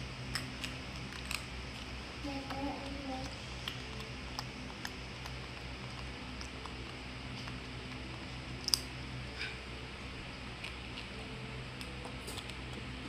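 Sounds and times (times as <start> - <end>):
steady low hum: 0.0 - 13.0
snack crunching: 0.2 - 2.0, 3.6 - 9.0, 10.5 - 12.9.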